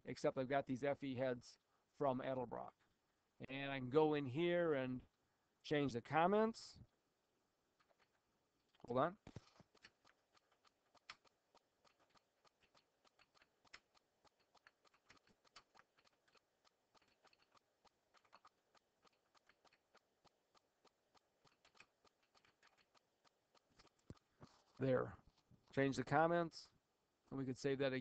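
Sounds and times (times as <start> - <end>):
faint keyboard typing: 7.7 - 26.3.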